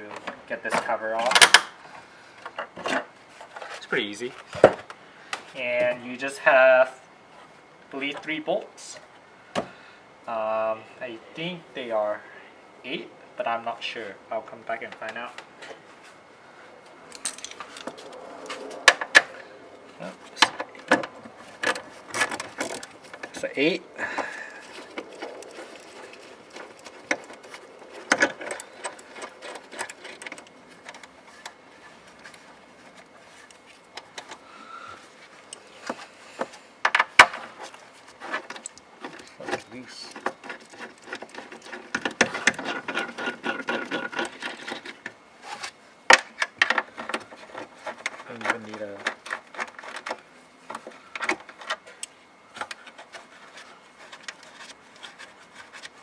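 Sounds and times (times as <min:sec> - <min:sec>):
small clicks and rattles: 0:24.2 - 0:34.4.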